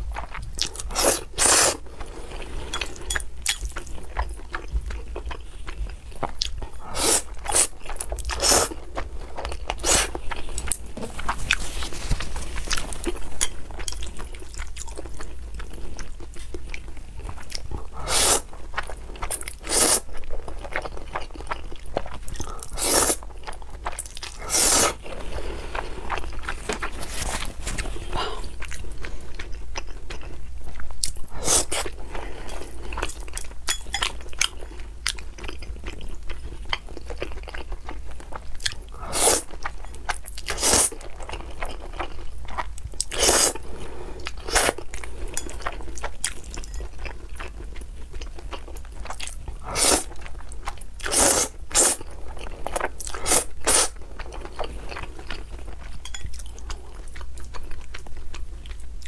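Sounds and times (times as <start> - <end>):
person slurping and chewing noodles: 0.0 - 58.0.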